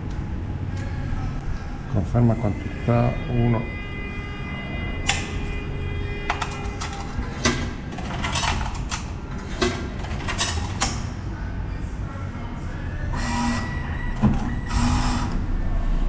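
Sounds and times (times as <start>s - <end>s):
coins clinking through machine: 6.3s - 11.0s.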